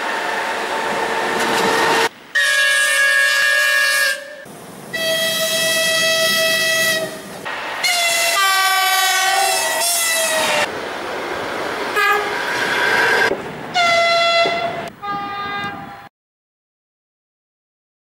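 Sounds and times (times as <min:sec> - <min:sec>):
electric locomotive rushing past: 0:00.0 - 0:02.1, 0:04.5 - 0:16.0
locomotive horn blasts: 0:02.3 - 0:07.2, 0:07.8 - 0:10.7, 0:12.0 - 0:12.3, 0:13.8 - 0:16.1.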